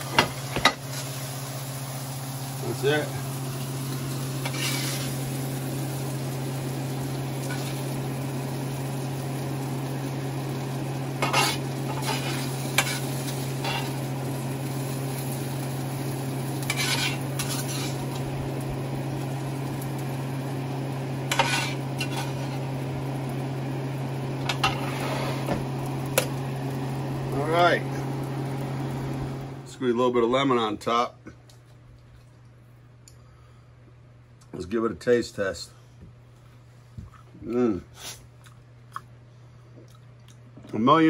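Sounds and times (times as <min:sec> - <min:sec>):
sizzling in a pan: 0:00.0 - 0:29.7
metal spatula scraping skillet: 0:04.4 - 0:05.1, 0:11.2 - 0:14.0, 0:16.6 - 0:18.1, 0:21.3 - 0:22.6, 0:24.5 - 0:25.6.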